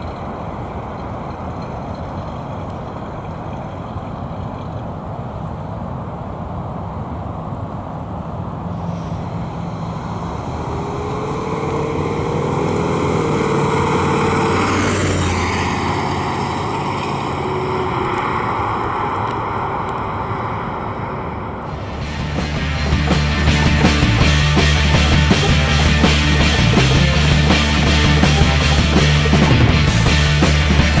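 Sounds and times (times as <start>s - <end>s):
car engine driving past: 0.0s - 31.0s
tyre noise: 21.6s - 31.0s.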